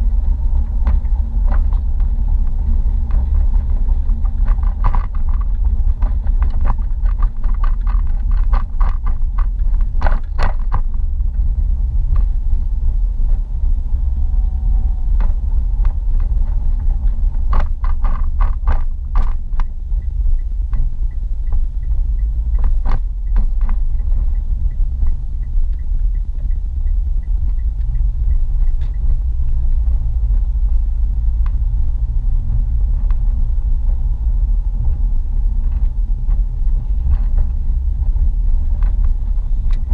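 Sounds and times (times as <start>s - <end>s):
road and engine rumble: 0.0s - 39.9s.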